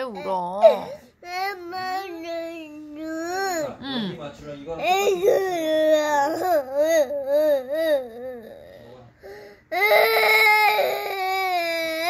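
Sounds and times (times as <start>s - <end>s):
toddler crying: 4.8s - 8.9s, 9.7s - 12.0s.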